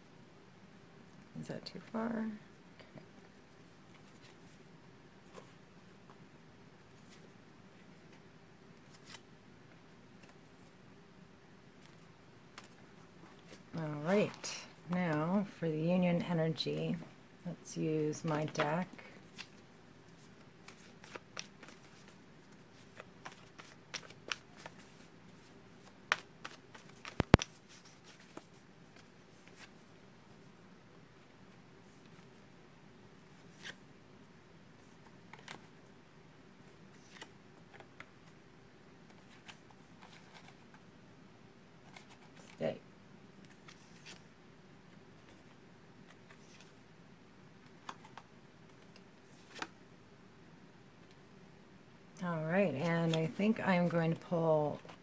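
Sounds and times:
cards being shuffled: 0:08.8 - 0:09.3, 0:18.3 - 0:29.8, 0:33.2 - 0:33.8, 0:34.9 - 0:35.7, 0:36.8 - 0:38.4, 0:39.1 - 0:40.8, 0:43.4 - 0:44.2, 0:45.2 - 0:46.8, 0:47.7 - 0:49.8
tarot cards clicking: 0:26.1 - 0:27.6.

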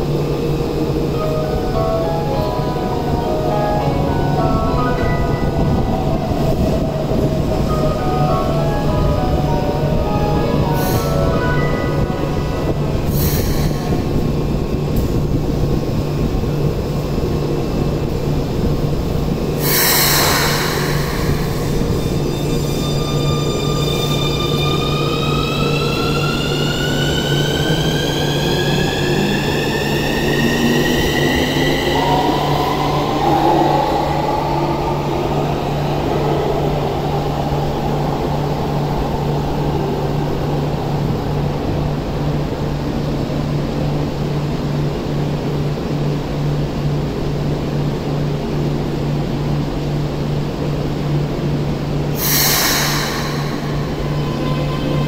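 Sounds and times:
train air hiss: 0:10.6 - 0:11.5, 0:12.9 - 0:15.2, 0:19.5 - 0:25.1, 0:52.0 - 0:54.4.

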